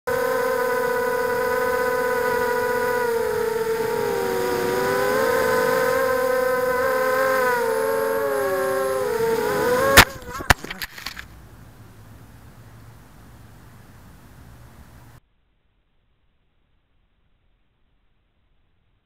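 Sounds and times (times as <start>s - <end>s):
drone propellers whining: 0.0s - 15.2s.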